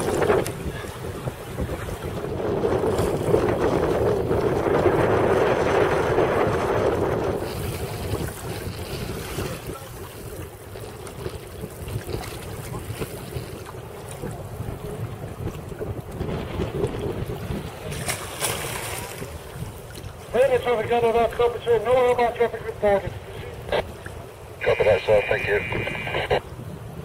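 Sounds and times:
water splashing against kayak: 0:00.0 - 0:27.0
wind buffeting microphone: 0:00.0 - 0:27.0.

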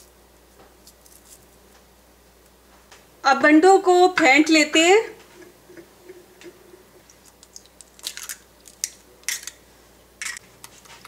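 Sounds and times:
eggshells cracking: 0:07.0 - 0:09.6.

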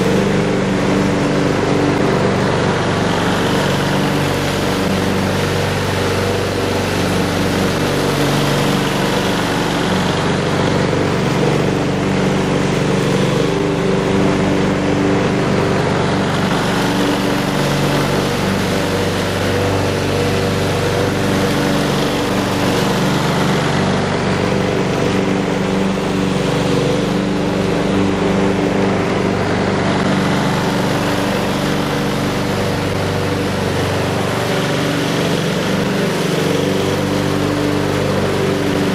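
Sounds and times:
lawn mower engine running: 0:00.0 - 0:38.9
mower cutting grass: 0:00.0 - 0:38.9.

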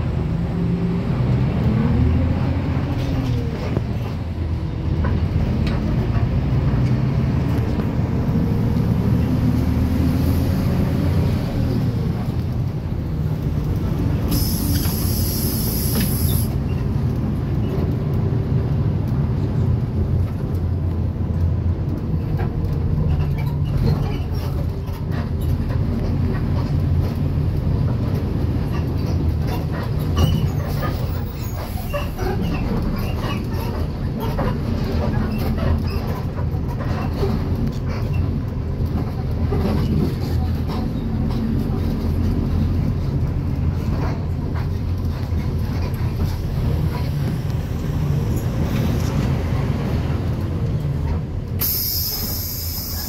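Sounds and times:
bus engine and road drone: 0:00.0 - 0:53.0
interior rattles and clicks: 0:15.8 - 0:51.8.

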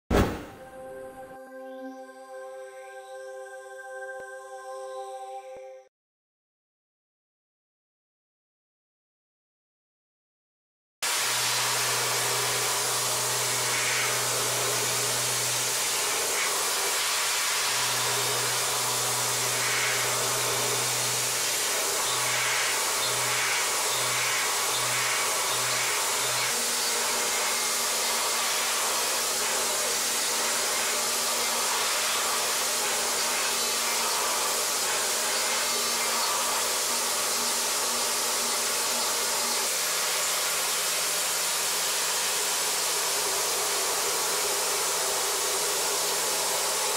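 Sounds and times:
hiss of metal cutting: 0:11.1 - 0:46.9
milling spindle hum: 0:11.4 - 0:46.9.

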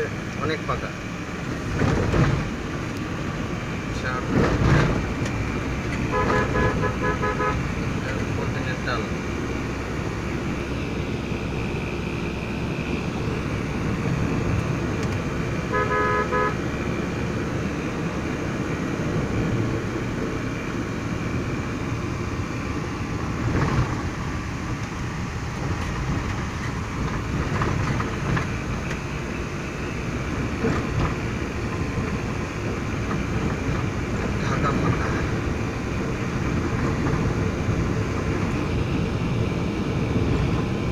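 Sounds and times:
car engine and road noise: 0:00.0 - 0:40.9
vehicle horn toot: 0:06.1 - 0:07.7, 0:15.7 - 0:16.6.

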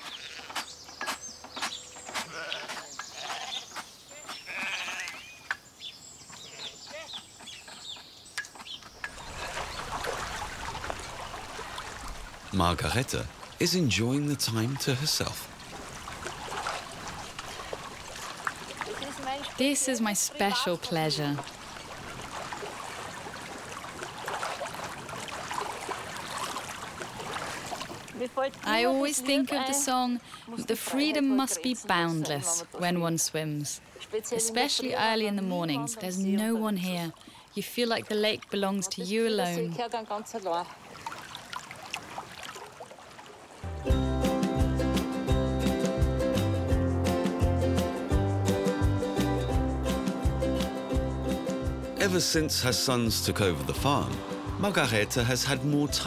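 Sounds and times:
sheep and goats bleating: 0:00.0 - 0:00.6, 0:02.2 - 0:03.7, 0:04.3 - 0:05.4
lake water washing: 0:08.6 - 0:43.7, 0:48.8 - 0:56.0.

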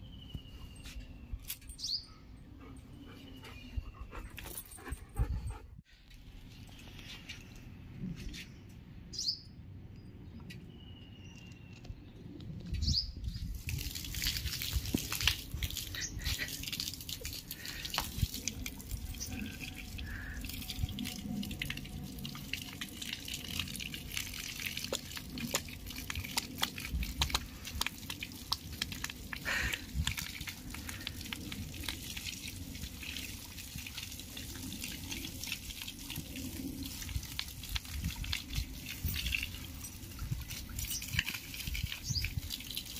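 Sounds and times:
water dripping: 0:13.2 - 0:42.9
water jet spraying and splashing: 0:13.5 - 0:42.9.

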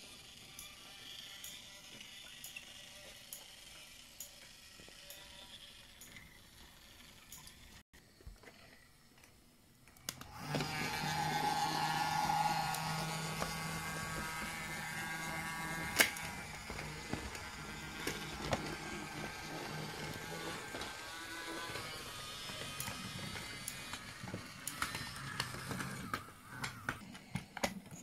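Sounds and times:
toy train motor whirring: 0:00.0 - 0:07.8, 0:10.1 - 0:28.0.

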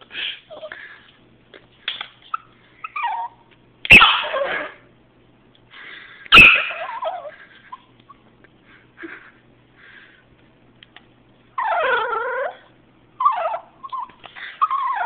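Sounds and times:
dog barking sharply: 0:03.9 - 0:04.6, 0:06.3 - 0:06.9.

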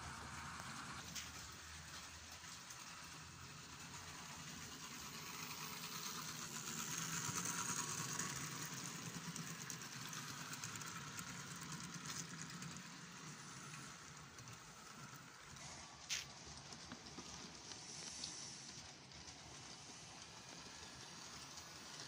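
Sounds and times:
model train running: 0:00.0 - 0:22.0
wheels clicking on rail: 0:00.1 - 0:22.0.

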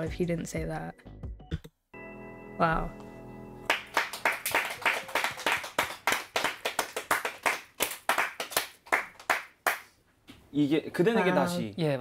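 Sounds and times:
hands clapping in applause: 0:03.7 - 0:10.0.

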